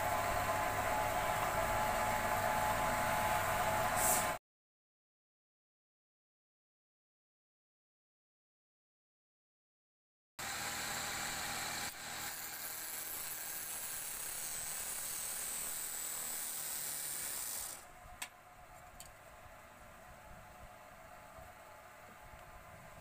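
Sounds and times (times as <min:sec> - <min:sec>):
chisel cutting wood on lathe: 0:10.4 - 0:17.8.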